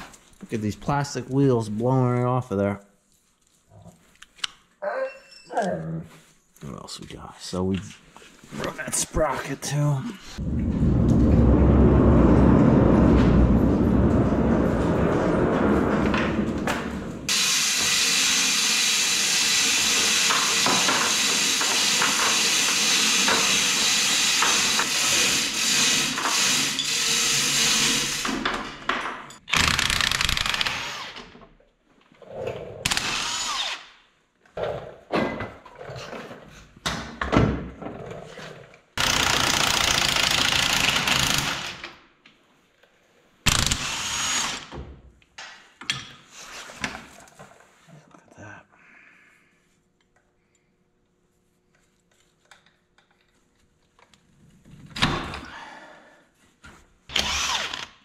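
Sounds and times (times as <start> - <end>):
power tools running: 10.7 - 28.8, 29.5 - 31.3, 32.9 - 33.8, 43.5 - 44.7, 57.1 - 57.9.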